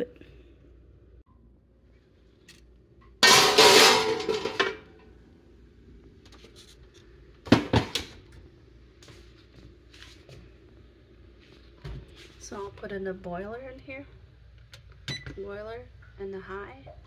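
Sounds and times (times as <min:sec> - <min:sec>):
baking sheet scraping oven rack: 0:03.2 - 0:04.8.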